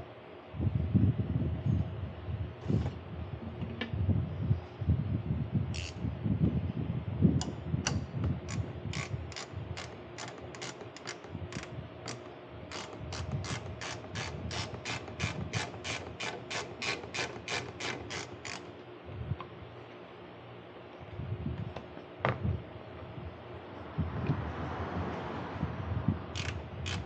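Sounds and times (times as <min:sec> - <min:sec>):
ratchet wrench clicking: 0:05.8 - 0:06.0, 0:07.9 - 0:18.7, 0:26.3 - 0:27.0.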